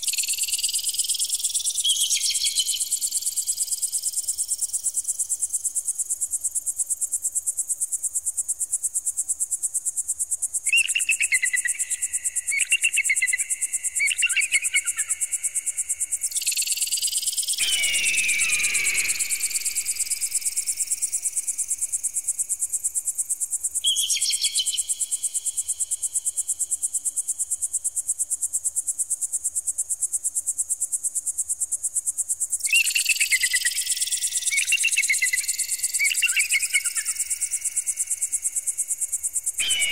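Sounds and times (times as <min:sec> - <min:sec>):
electronic chirping bursts: 0:17.6 - 0:21.3, 0:39.6 - 0:39.9.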